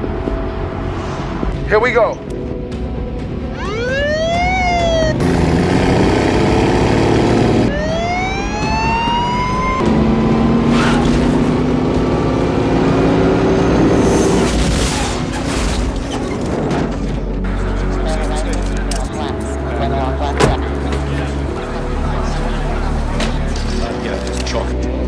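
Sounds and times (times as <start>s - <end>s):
siren wailing: 3.5s - 11.2s
diesel engine revving: 3.6s - 15.4s
crash: 14.0s - 17.3s.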